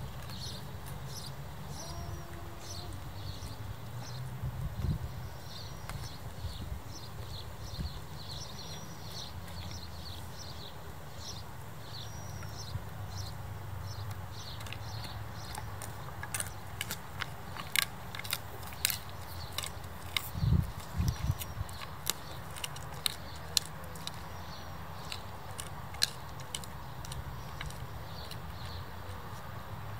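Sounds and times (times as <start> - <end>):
dog chewing: 0.0 - 4.1, 13.9 - 29.5
crunching cracks of biting: 14.0 - 29.5.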